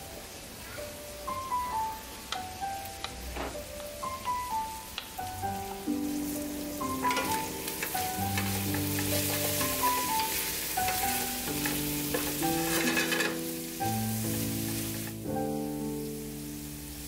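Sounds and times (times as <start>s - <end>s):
soft background music: 0.0s - 17.0s
bacon sizzling in a skillet: 0.1s - 17.0s
wooden spoon scraping a pan: 7.0s - 13.5s.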